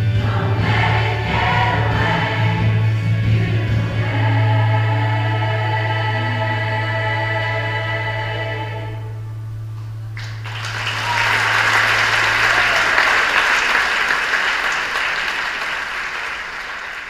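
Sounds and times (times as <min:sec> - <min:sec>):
low held tone: 0:06.2 - 0:10.5
audience applause: 0:10.2 - 0:17.0.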